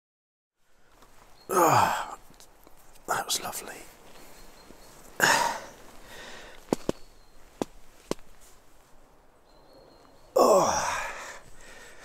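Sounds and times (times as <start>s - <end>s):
man's sharp breath: 5.2s - 6.7s, 10.8s - 12.0s.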